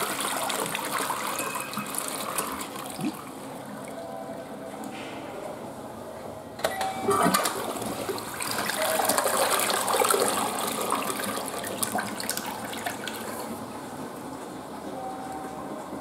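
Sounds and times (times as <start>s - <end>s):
toilet flushing water: 0.0s - 4.0s, 7.1s - 14.0s
toilet flush click: 6.7s - 13.3s.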